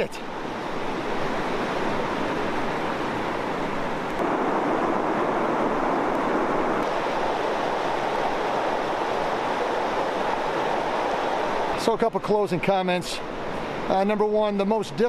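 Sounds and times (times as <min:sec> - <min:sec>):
river rapids rushing over rocks: 0:06.2 - 0:12.0.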